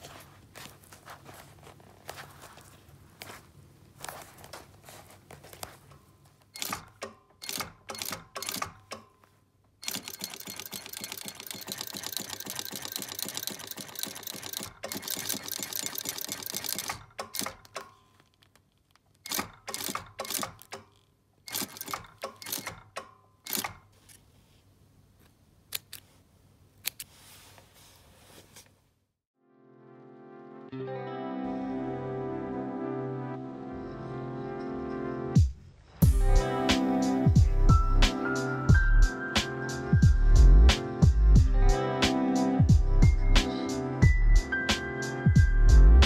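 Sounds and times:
industrial sewing machine stitching: 9.8 - 17.6, 19.3 - 20.6, 21.5 - 22.9.

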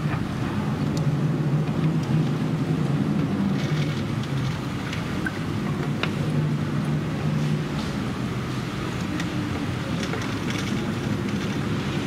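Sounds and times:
strong wind and heavy rain: 0.0 - 12.0.

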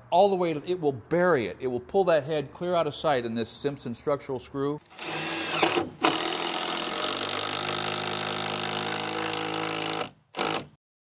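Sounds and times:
impact driver hammering screw into wood: 4.9 - 10.8.

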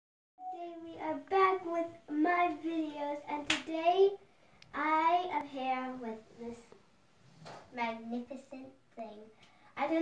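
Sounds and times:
child singing held notes: 0.4 - 6.8
sharp hand clap: 3.5 - 3.7.

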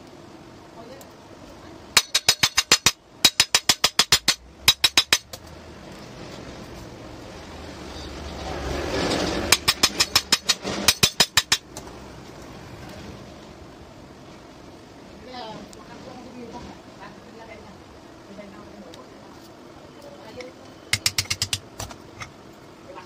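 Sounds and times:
rapid sharp tapping: 2.0 - 5.4, 9.5 - 11.9, 20.9 - 21.8.

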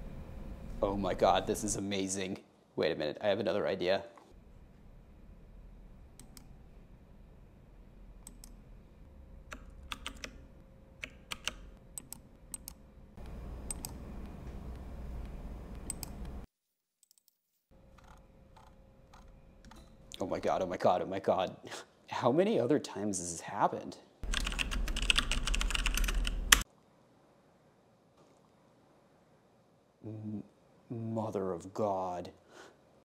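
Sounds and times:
low steady background hum: 0.0 - 16.5, 17.7 - 33.0
keyboard typing and clicking: 8.2 - 8.6, 9.5 - 10.4, 11.0 - 14.0, 14.7 - 16.4, 18.0 - 19.8, 24.2 - 26.6.

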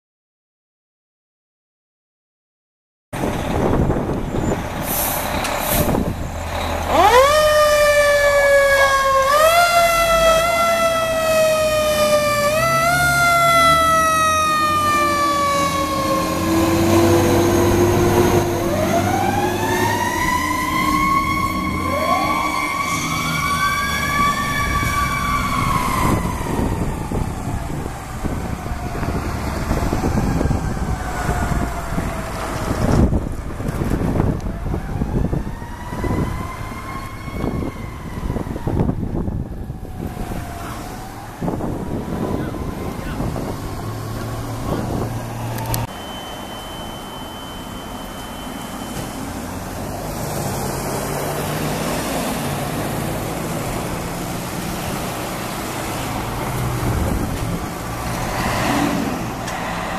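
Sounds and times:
fire engine siren wailing: 3.2 - 59.9
truck engine rumble: 3.2 - 59.9.

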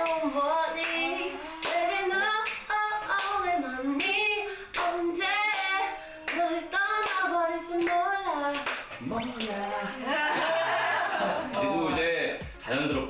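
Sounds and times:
women singing unaccompanied: 0.0 - 10.2
hand claps: 2.4 - 9.0.

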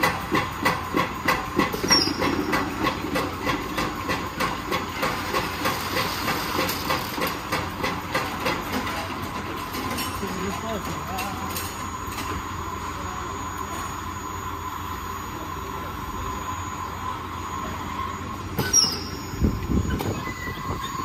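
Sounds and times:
packing machine clacking: 0.0 - 9.4
mechanical hum and hiss: 0.0 - 21.0.

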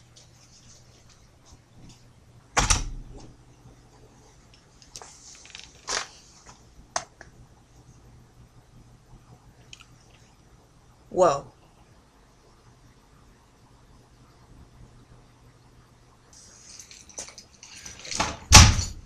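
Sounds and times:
door shutting thud: 2.6 - 3.3, 18.2 - 19.0.

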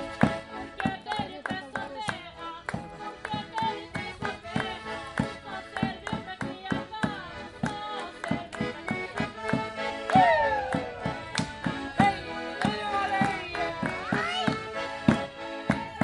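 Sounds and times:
accordion folk tune: 0.0 - 16.0
percussion beat: 0.0 - 16.0
loud falling cry: 10.1 - 11.0.

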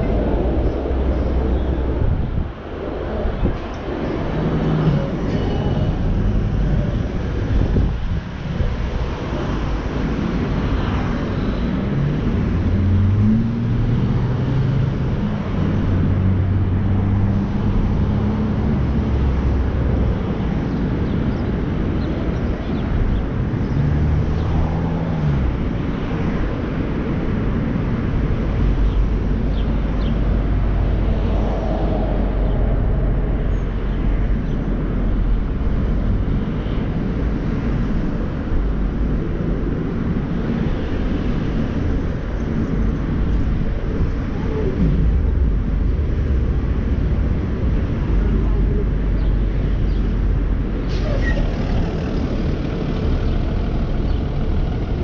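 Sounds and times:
car engine and road rumble: 0.0 - 55.0
low engine hum rising and dropping: 21.9 - 55.0.

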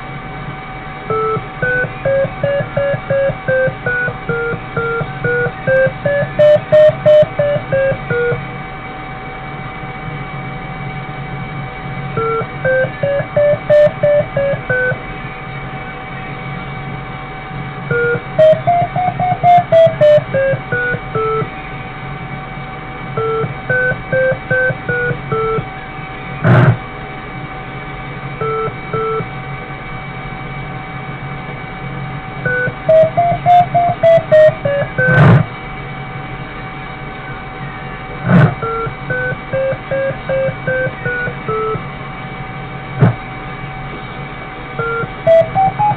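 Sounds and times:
steady hum: 0.0 - 45.9
variometer beeping in pulses: 1.0 - 8.5, 12.1 - 15.1, 17.8 - 21.6, 23.1 - 25.8, 26.4 - 26.8, 28.4 - 29.4, 32.4 - 35.5, 38.2 - 41.9, 42.9 - 43.2, 44.8 - 45.9.

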